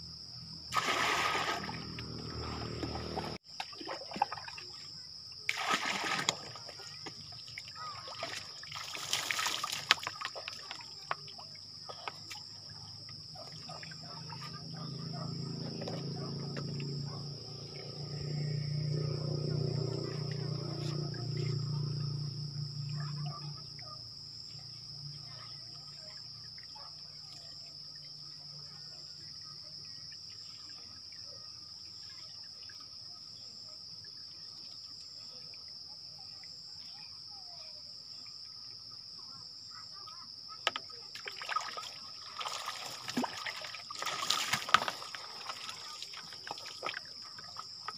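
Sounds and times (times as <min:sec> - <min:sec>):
insects droning: 0:00.0 - 0:47.9
water splashing and pouring: 0:00.7 - 0:14.5, 0:40.7 - 0:47.9.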